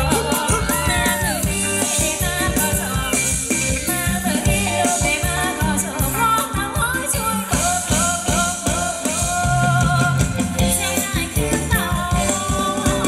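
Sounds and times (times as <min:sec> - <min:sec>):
live band dance music: 0:00.0 - 0:13.0.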